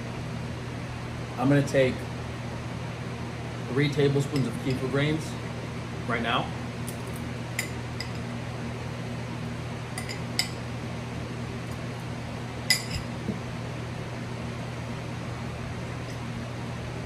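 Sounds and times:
room fans humming: 0:00.0 - 0:17.0
metal spoon clinking glass: 0:12.7 - 0:13.1.

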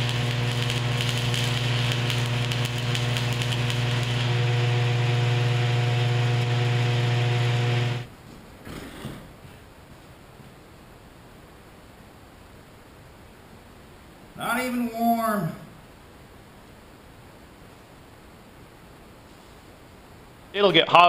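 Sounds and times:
strong low hum: 0:00.0 - 0:08.1
welding arc crackling and hissing: 0:00.0 - 0:08.1.

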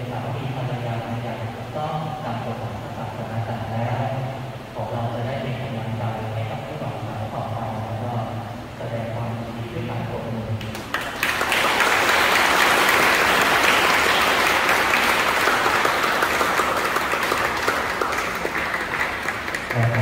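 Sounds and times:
crowd applauding: 0:10.7 - 0:20.0.

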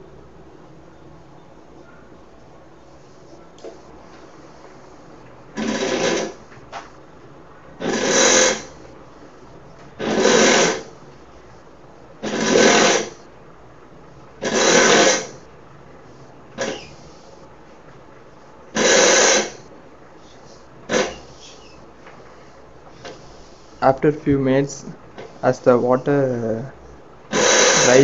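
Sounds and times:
wiper motor and blade sweeping: 0:27.4 - 0:28.0.

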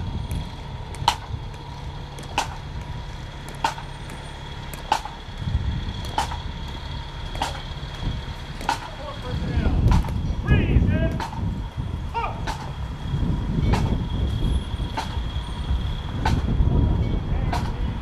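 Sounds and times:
low outdoor rumble: 0:00.0 - 0:18.0.

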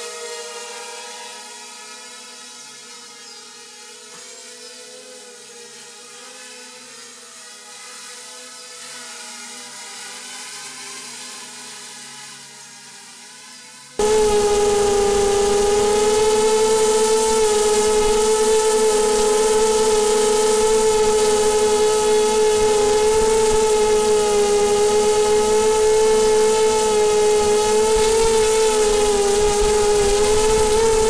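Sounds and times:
quadcopter propellers whining: 0:14.0 - 0:31.0.

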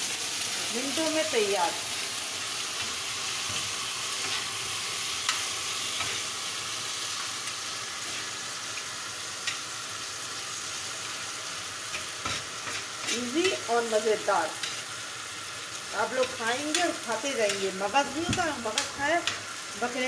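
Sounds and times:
food sizzling in a pan: 0:00.0 - 0:20.0
metal spatula scraping: 0:02.8 - 0:04.6, 0:11.9 - 0:13.6
spatula tapping on pan: 0:18.2 - 0:19.4.

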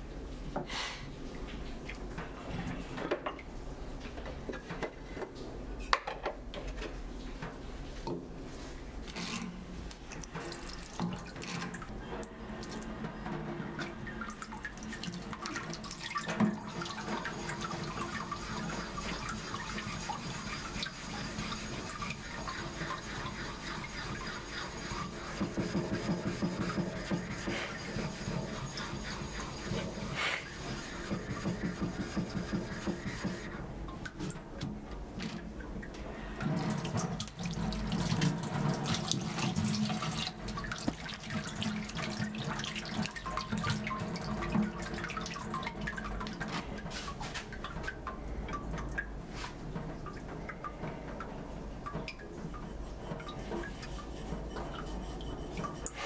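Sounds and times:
blade rubbing on whetstone: 0:19.9 - 0:33.4.

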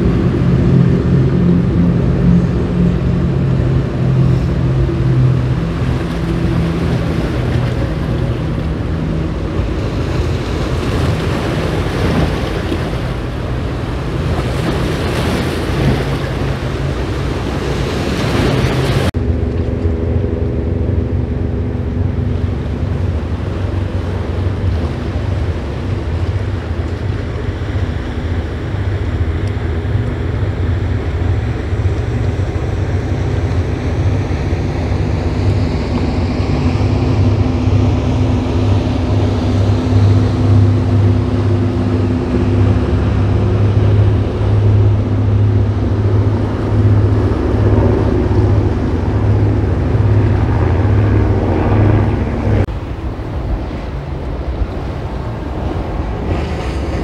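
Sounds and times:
boat engine drone: 0:00.0 - 0:57.0
rushing boat wake: 0:00.0 - 0:57.0
wind on microphone: 0:00.0 - 0:57.0.

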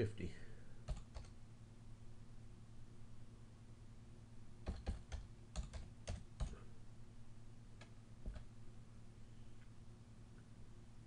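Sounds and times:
low steady hum: 0:00.0 - 0:11.0
keyboard keys tapping: 0:04.6 - 0:06.6, 0:07.8 - 0:08.5.

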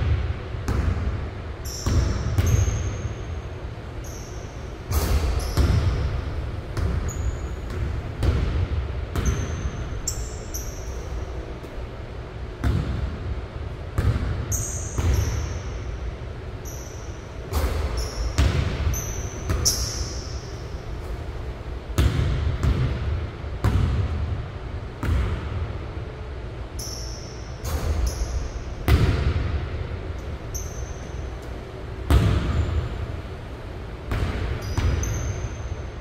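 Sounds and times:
shoe squeaks: 0:01.7 - 0:03.4, 0:04.0 - 0:06.2, 0:07.0 - 0:07.7, 0:09.2 - 0:11.6, 0:14.5 - 0:15.8, 0:16.6 - 0:20.7, 0:26.8 - 0:28.7, 0:30.5 - 0:31.6, 0:34.6 - 0:36.0
basketball bouncing on hardwood floor: 0:01.8 - 0:02.9, 0:05.0 - 0:06.1, 0:06.8 - 0:09.8, 0:12.6 - 0:13.1, 0:14.0 - 0:15.6, 0:17.6 - 0:20.1, 0:22.0 - 0:24.2, 0:25.0 - 0:25.4, 0:32.1 - 0:32.8, 0:34.1 - 0:35.4.

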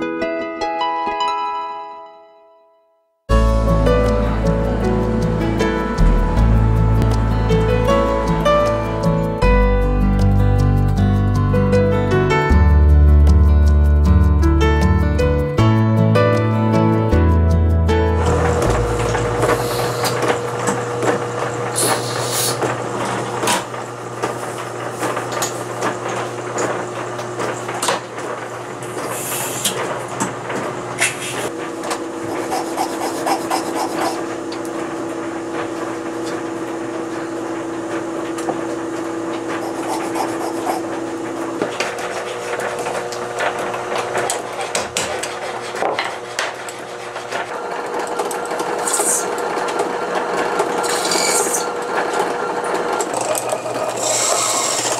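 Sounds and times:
steady background hum: 0:18.2 - 0:26.8, 0:27.4 - 0:54.9
hand filing and scraping: 0:32.3 - 0:34.2, 0:39.5 - 0:41.0, 0:41.8 - 0:42.9, 0:44.2 - 0:47.5, 0:48.8 - 0:49.3, 0:50.8 - 0:51.7.

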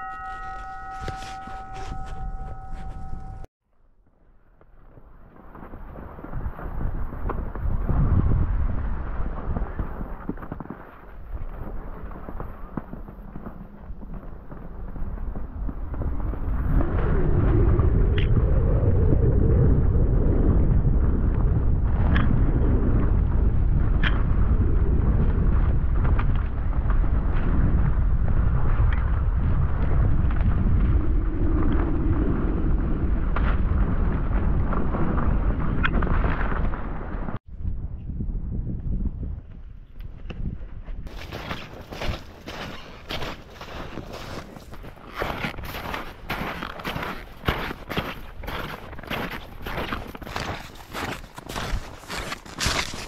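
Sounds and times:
skis crunching on crusty snow: 0:04.7 - 0:16.8, 0:41.1 - 0:53.0
wind rumble on microphone: 0:04.7 - 0:53.0.

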